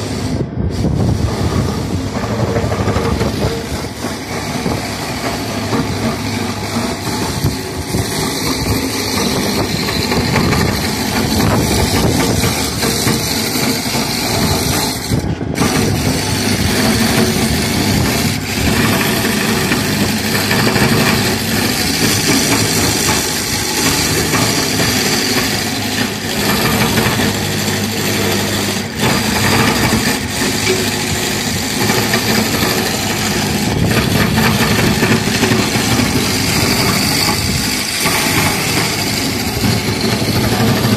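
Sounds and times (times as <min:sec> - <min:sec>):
small engine running loudly: 0:00.0 - 0:40.9.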